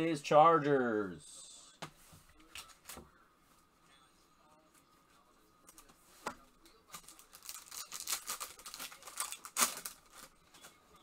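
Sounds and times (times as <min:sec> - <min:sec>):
foil wrapper crinkling and tearing: 0:06.9 - 0:10.8.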